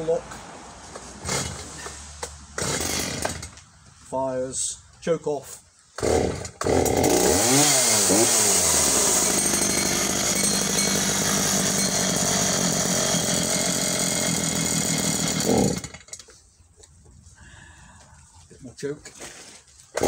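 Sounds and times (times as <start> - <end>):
chainsaw starting and idling: 1.2 - 1.7, 2.6 - 3.6, 6.0 - 16.3.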